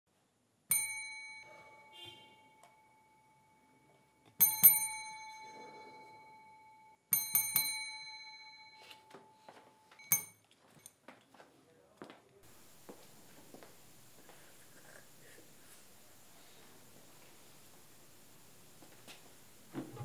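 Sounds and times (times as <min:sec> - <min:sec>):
desk service bell dinging: 0:00.7 - 0:10.4.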